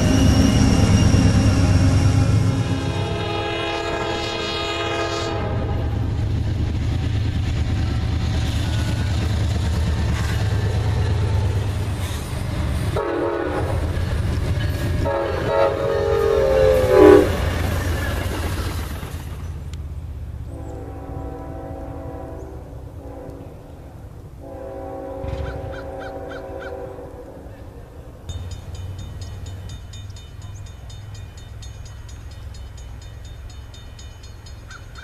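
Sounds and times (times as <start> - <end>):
locomotive horn: 0.0 - 6.1, 12.9 - 14.0, 14.8 - 17.6, 20.5 - 23.8, 24.4 - 27.9
freight train rumble and wheel noise: 0.0 - 35.0.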